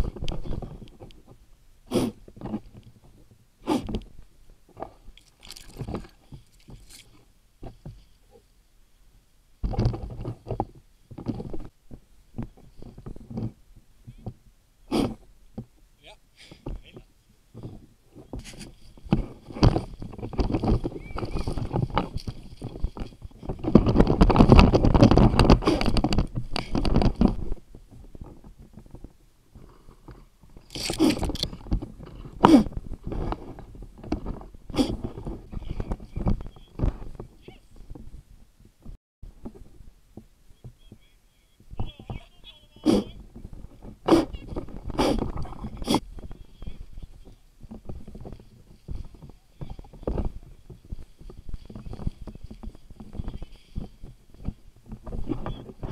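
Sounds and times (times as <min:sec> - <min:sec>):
crunching through dry heather: 0:00.0 - 0:55.9
footsteps through dry heather: 0:18.1 - 0:27.7, 0:43.1 - 0:55.9.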